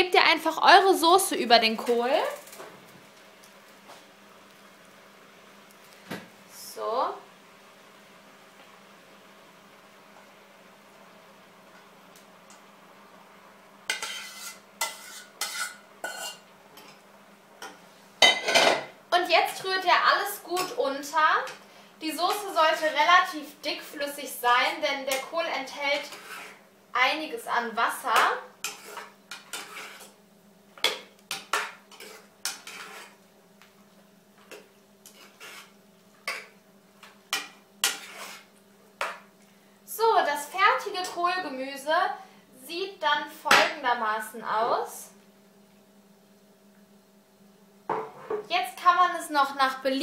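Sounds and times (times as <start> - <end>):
faint steady hum: 0.0 - 50.0
spoon scraping metal pot: 13.9 - 16.4, 26.0 - 26.6, 28.6 - 30.2, 31.5 - 33.2, 35.0 - 35.7, 37.3 - 38.5.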